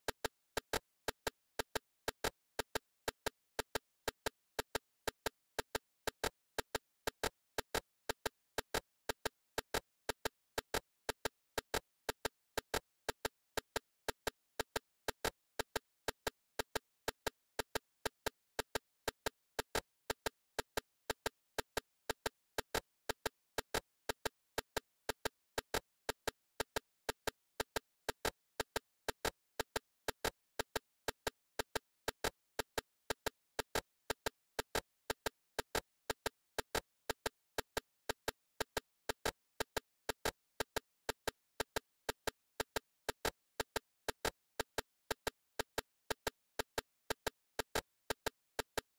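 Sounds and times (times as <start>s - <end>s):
sharp clicks: 0.0s - 48.9s.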